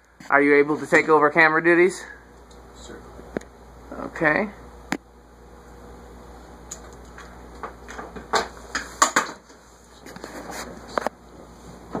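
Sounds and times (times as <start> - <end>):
ceiling fan humming: 0.0 - 12.0.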